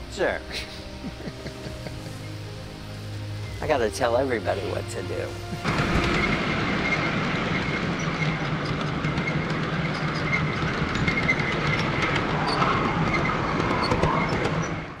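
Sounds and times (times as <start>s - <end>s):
train wheels clicking on rail joints: 5.3s - 15.0s.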